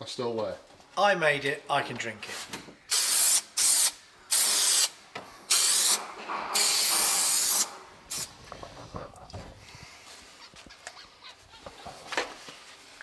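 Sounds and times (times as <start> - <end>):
aerosol can hissing: 2.9 - 6.0, 6.6 - 8.4.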